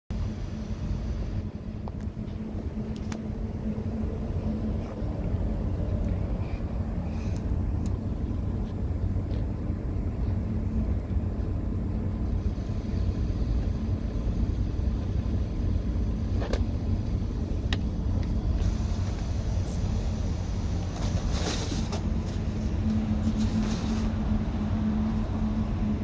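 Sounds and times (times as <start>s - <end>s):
ship machinery rumble and hum: 0.1s - 26.0s
light ticks: 7.3s - 8.0s.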